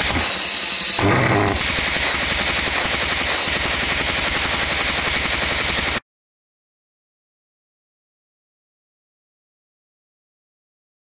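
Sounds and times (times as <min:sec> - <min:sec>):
pulse jet engine running: 0:00.0 - 0:06.0.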